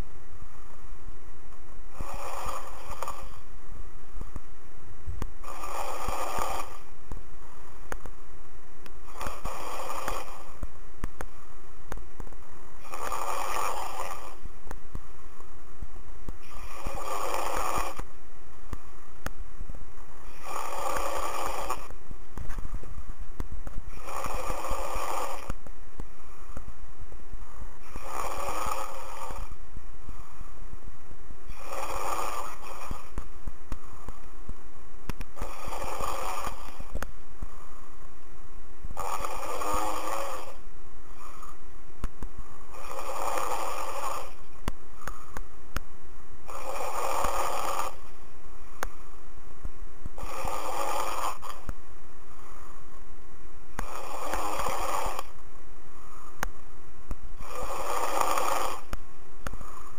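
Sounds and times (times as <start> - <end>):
person snoring: 1.9 - 3.5, 5.4 - 7.0, 9.0 - 10.6, 12.8 - 14.5, 16.4 - 18.1, 20.2 - 22.0, 23.9 - 25.6, 27.8 - 30.4, 31.4 - 34.3, 35.3 - 37.7, 38.9 - 41.6, 42.5 - 45.4, 46.4 - 48.2, 50.2 - 51.7, 53.7 - 55.4, 57.4 - 59.9.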